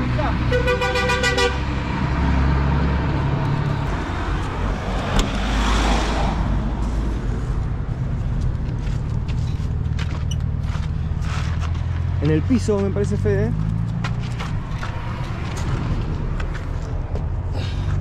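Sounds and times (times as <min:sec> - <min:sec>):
engine humming low: 0:00.0 - 0:18.0
car driving past: 0:01.8 - 0:07.6.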